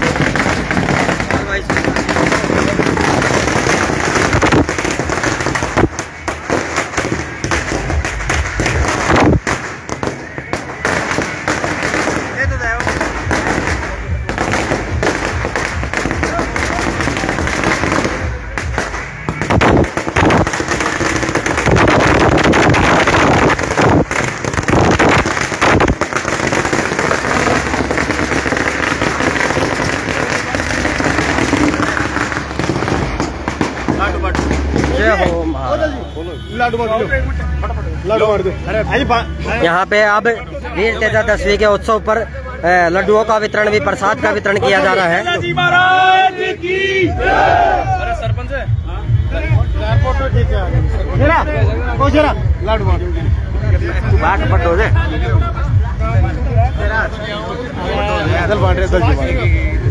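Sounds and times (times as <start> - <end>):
firecrackers crackling and banging: 0.0 - 45.4.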